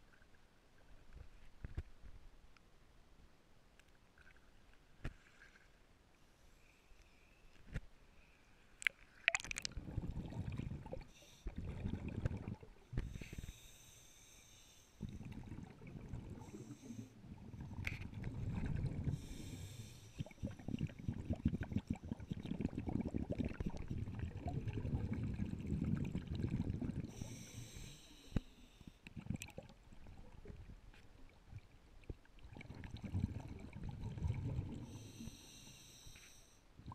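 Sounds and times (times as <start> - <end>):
regulator hissing inhalation: 19.1 - 20.4, 27.1 - 29.0, 34.8 - 36.6
rumbling exhaust bubbles: 20.4 - 27.1.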